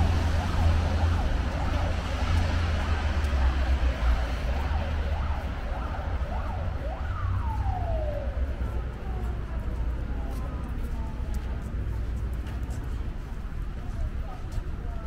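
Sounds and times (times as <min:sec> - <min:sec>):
emergency siren yelping: 0:00.0 - 0:10.7
low traffic rumble: 0:00.0 - 0:15.0.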